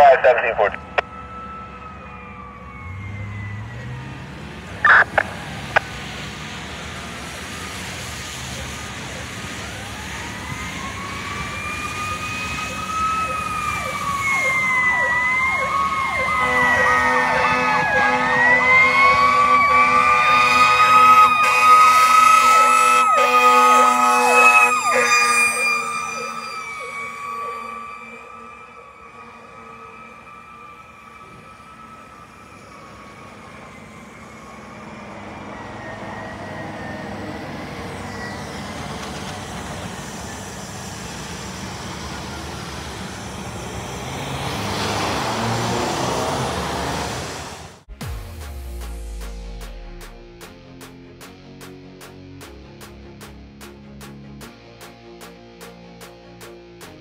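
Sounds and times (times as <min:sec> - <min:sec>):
fire engine horn blaring: 0:00.0 - 0:04.1, 0:04.8 - 0:40.2
fire engine siren wailing: 0:00.0 - 0:47.9.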